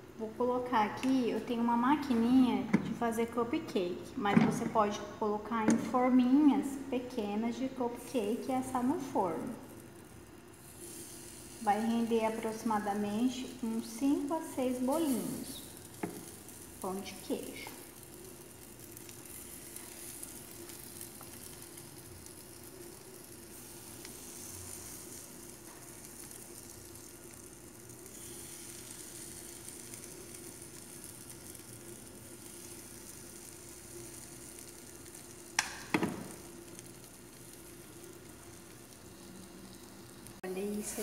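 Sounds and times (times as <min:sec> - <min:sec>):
batter sizzling: 0:00.0 - 0:41.0.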